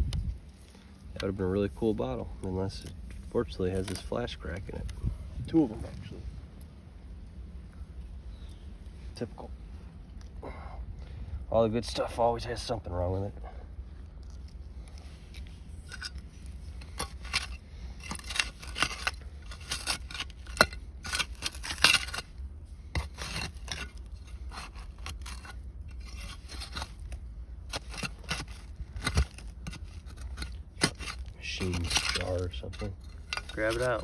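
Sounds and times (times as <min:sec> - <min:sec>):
tool scraping through dirt: 0:00.0 - 0:06.1, 0:14.2 - 0:34.0.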